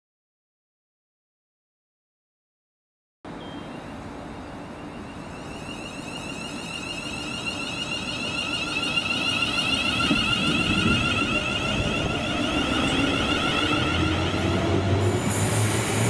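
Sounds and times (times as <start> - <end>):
train wheels rumbling on track: 4.2 - 16.0
high wavering whine: 4.7 - 16.0.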